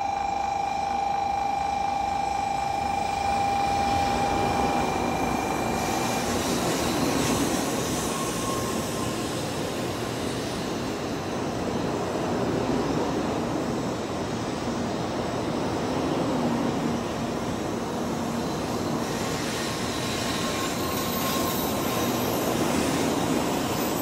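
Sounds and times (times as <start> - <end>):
steady high tone: 0.0 - 9.1
faint brake squeal: 0.0 - 9.6, 18.4 - 24.0
train wheels and air rushing: 3.0 - 24.0.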